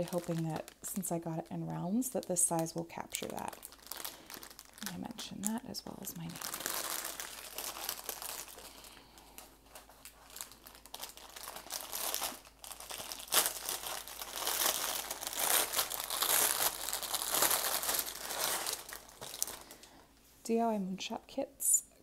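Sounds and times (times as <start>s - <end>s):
plastic bag crinkling: 0.0s - 20.0s.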